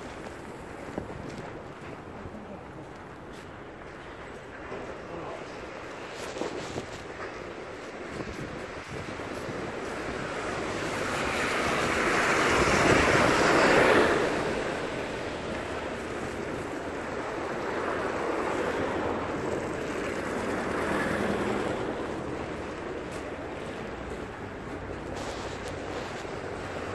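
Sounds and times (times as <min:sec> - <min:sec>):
tyre hiss on wet road: 0:25.0 - 0:26.9.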